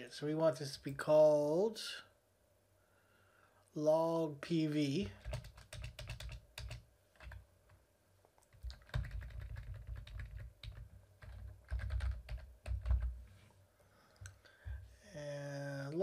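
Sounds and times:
keyboard typing: 0:05.0 - 0:07.4, 0:08.5 - 0:13.2.

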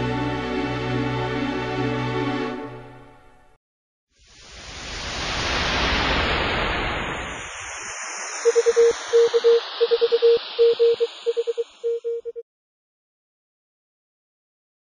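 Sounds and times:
morse code beeps: 0:08.5 - 0:12.4.

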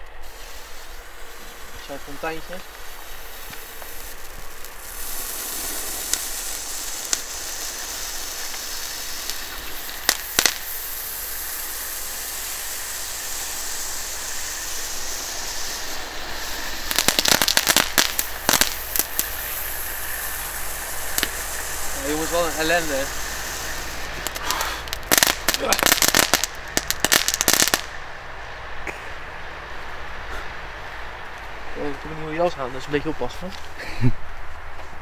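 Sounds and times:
crackling pops: 0:00.0 - 0:28.0
firework fountain hissing: 0:00.0 - 0:34.7
sharp cracks: 0:01.6 - 0:28.0.

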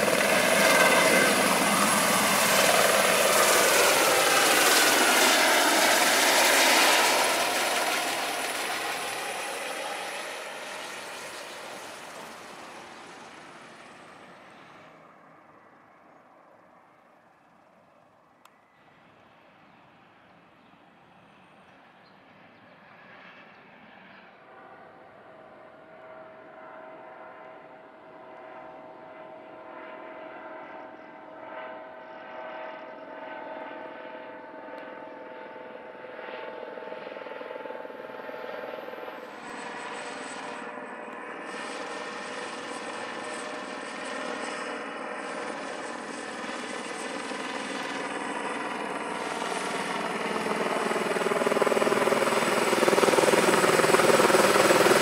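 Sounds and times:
turbine whine: 0:00.0 - 0:15.9, 0:38.6 - 0:55.0
helicopter flying by: 0:00.0 - 0:55.0.

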